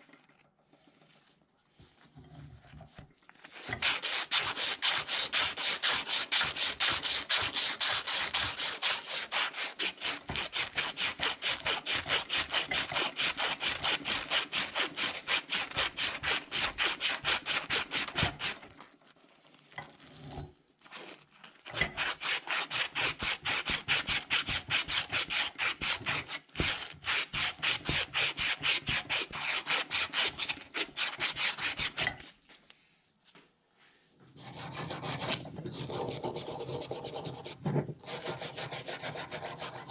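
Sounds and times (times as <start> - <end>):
sandpaper rasping on metal shaft: 3.6 - 18.6, 21.8 - 32.1, 34.4 - 39.9.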